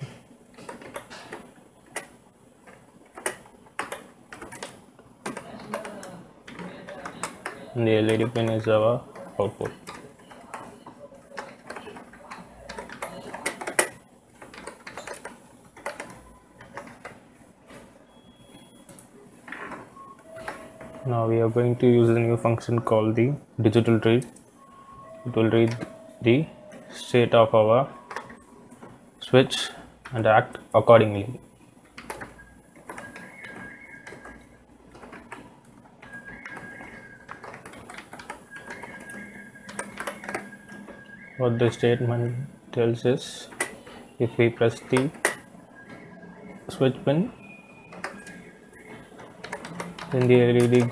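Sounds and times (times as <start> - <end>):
computer keyboard typing: 0.0 - 22.9, 31.8 - 50.9
keyboard keys clicking: 31.9 - 42.4, 43.4 - 50.9.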